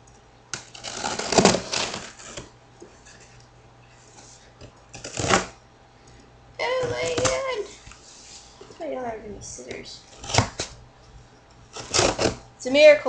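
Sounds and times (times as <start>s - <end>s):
scissors cutting tape and cardboard: 0.5s - 2.5s, 4.9s - 5.5s, 6.8s - 7.5s, 9.7s - 10.8s, 11.7s - 12.4s.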